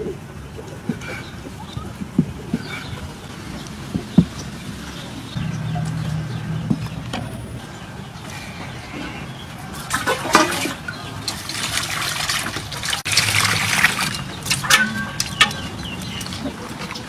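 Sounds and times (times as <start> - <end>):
water pouring and splashing: 9.5 - 17.0.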